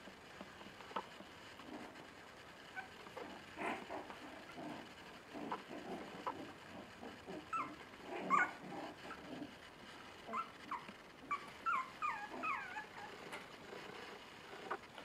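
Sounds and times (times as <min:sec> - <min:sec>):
puppies grunting and growling: 0:00.9 - 0:15.0
puppies yelping and whimpering: 0:07.2 - 0:09.2, 0:10.3 - 0:13.2.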